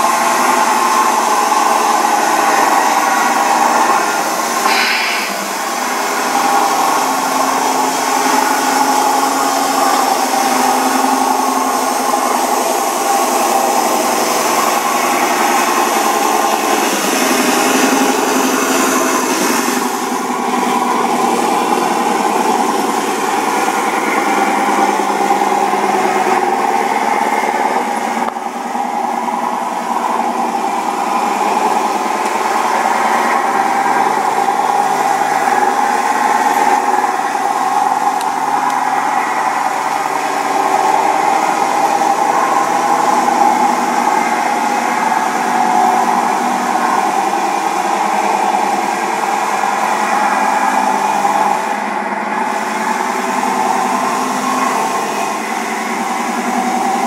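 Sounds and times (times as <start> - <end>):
model truck engine drone: 0.0 - 57.0.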